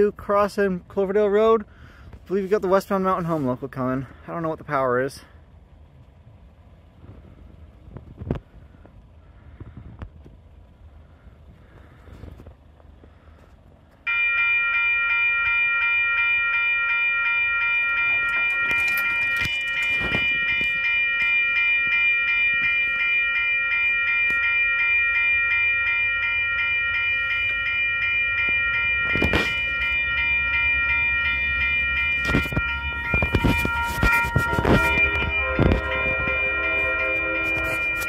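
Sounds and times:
crossing warning bell ringing: 0.0 - 0.6, 1.2 - 5.3, 14.0 - 38.0
low train rumble: 0.0 - 38.0.

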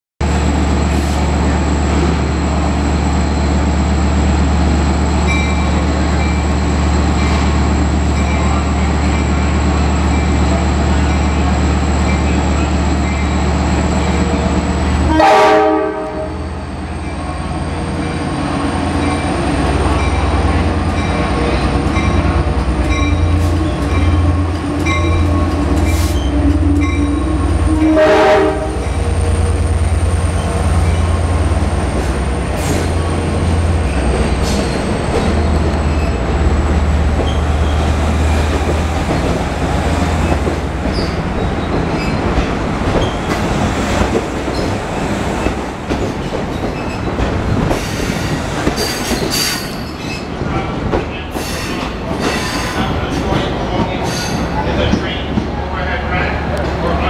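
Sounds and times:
diesel locomotive engine drone: 0.2 - 57.0
train coaches rolling past: 0.2 - 57.0
train horn blast: 15.0 - 16.5, 26.5 - 29.0.

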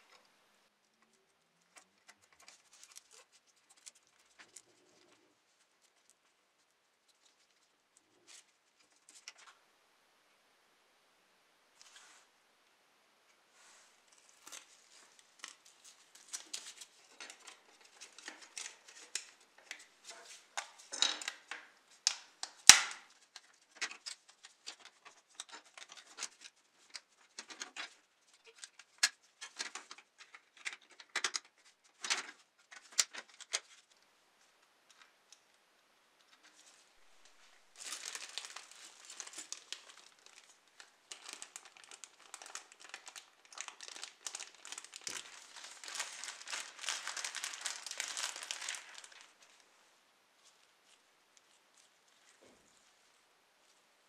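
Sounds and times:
plastic bag crinkling: 14.1 - 33.7, 36.6 - 49.7
plastic parts clicking and tapping: 16.4 - 33.7
sharp plastic snap: 22.1 - 23.0.

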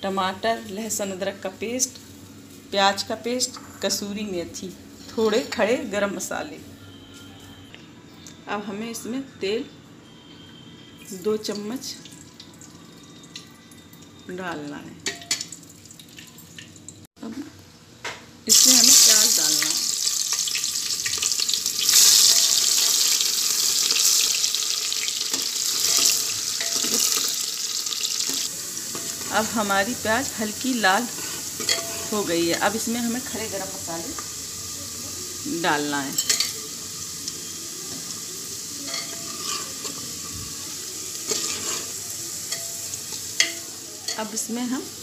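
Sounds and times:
onions sizzling in hot oil: 18.5 - 45.0
spoon scraping pot: 31.1 - 32.2, 38.9 - 40.1, 41.3 - 42.8.

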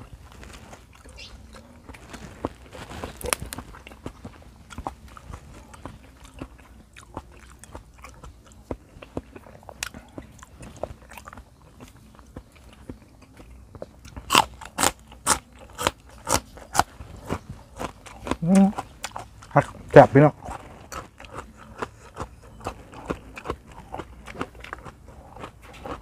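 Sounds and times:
smacking crunches: 0.0 - 12.0
man chewing wetly: 0.0 - 26.0.

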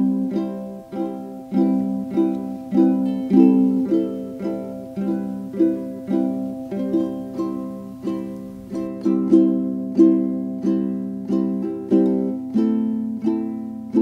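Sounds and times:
plucked string instrument tune: 0.0 - 14.0.

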